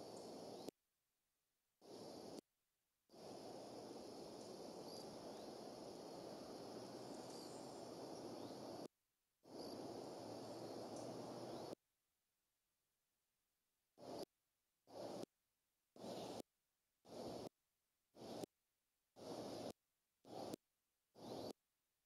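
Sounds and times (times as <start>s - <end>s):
faint high chirps: 6.9s - 8.9s.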